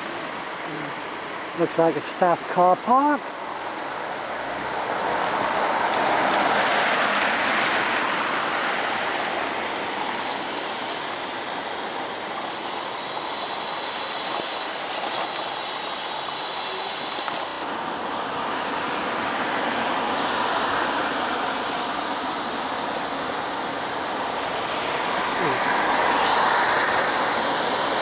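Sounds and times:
road vehicle rushing noise: 3.2 - 28.0
faint high whine: 8.3 - 17.7.

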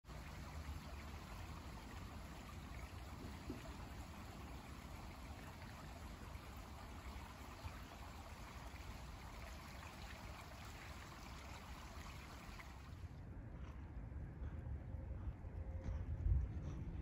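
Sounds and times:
creek trickling: 0.0 - 13.1.

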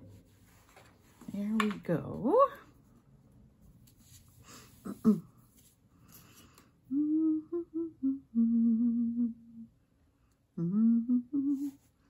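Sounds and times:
woman humming: 6.9 - 9.7, 10.6 - 11.8.

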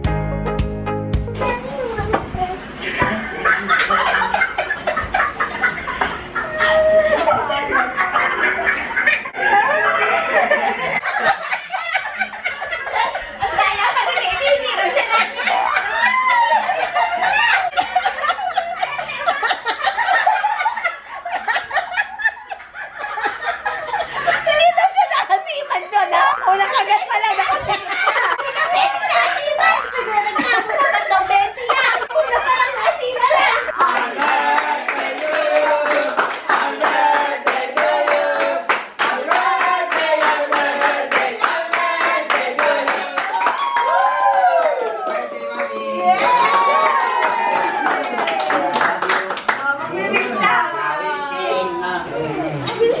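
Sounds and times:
people laughing loudly: 3.0 - 37.4
high squeals of laughter: 6.4 - 7.4, 27.9 - 30.2, 31.7 - 32.6
group of people singing: 33.7 - 43.3
people clapping a steady beat: 33.7 - 50.0.

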